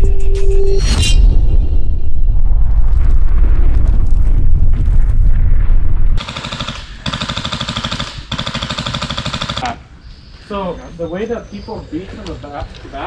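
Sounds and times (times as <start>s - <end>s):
deep rumbling intro music: 0.0s - 6.2s
airsoft gun firing full auto: 6.2s - 9.7s.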